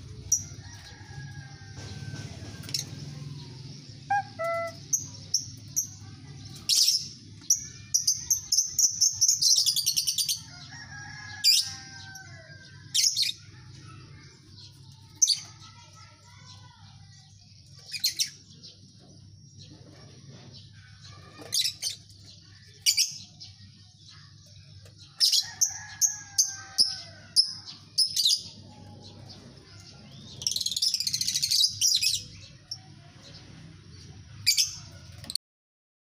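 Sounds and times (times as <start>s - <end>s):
lovebirds chirping and squeaking: 0.0s - 33.5s.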